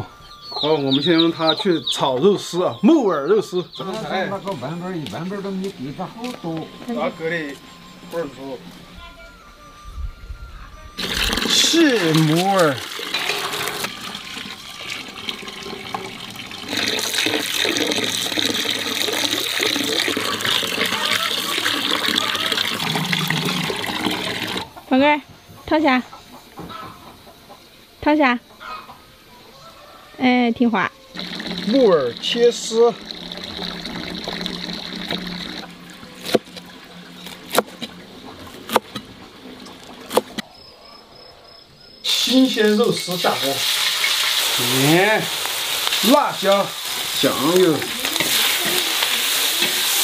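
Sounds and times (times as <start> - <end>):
splashing hands rinsing: 11.0 - 24.6
tap water pouring into bucket: 11.0 - 24.7, 31.2 - 38.2, 42.2 - 50.0
steady background hiss: 24.6 - 33.2, 37.8 - 50.0
cleaver cutting fungus: 36.2 - 37.9.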